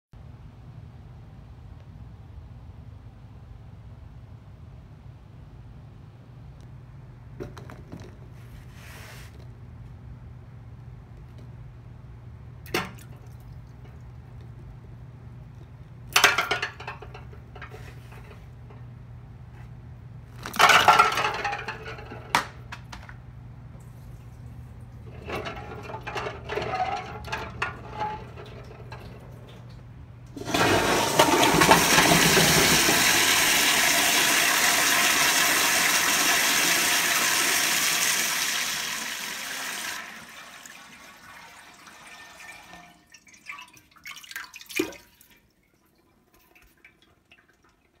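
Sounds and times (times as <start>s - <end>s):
balls splashing into toilet water: 12.6s - 14.3s, 15.6s - 18.2s, 20.3s - 23.0s, 24.1s - 48.0s
toilet flushing: 25.0s - 48.0s
water gurgling in toilet bowl: 30.4s - 48.0s.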